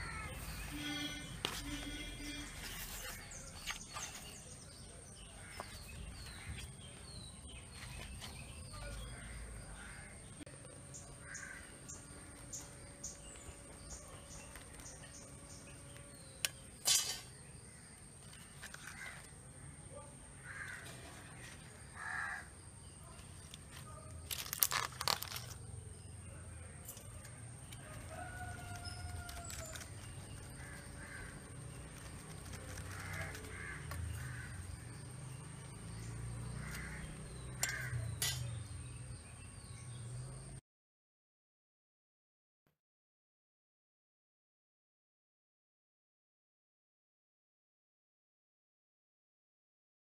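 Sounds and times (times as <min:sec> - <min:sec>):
crows cawing: 0:00.0 - 0:00.6, 0:11.2 - 0:11.8, 0:18.7 - 0:19.3, 0:20.4 - 0:21.0, 0:21.9 - 0:22.5, 0:28.2 - 0:31.6, 0:32.6 - 0:34.8, 0:36.6 - 0:38.1.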